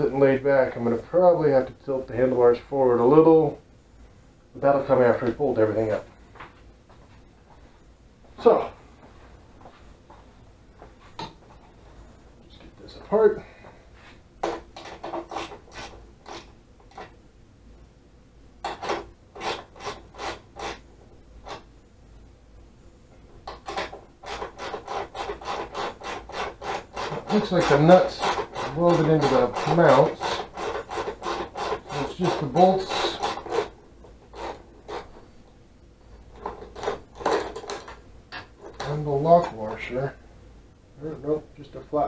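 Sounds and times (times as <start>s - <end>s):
wrench scraping on bolts: 18.6s - 20.8s, 23.5s - 35.2s, 36.3s - 39.8s.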